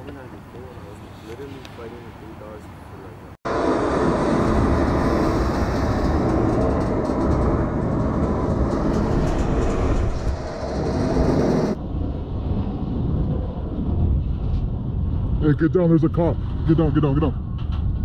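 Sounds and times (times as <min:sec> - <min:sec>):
freight train wheels rumbling: 0:03.5 - 0:11.8.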